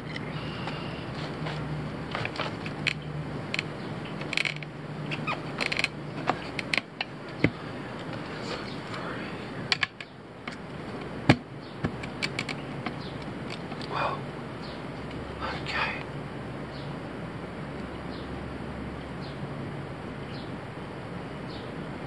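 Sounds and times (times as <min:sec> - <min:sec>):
tire irons clinking on wheel rim: 0:00.0 - 0:08.8, 0:09.7 - 0:13.9.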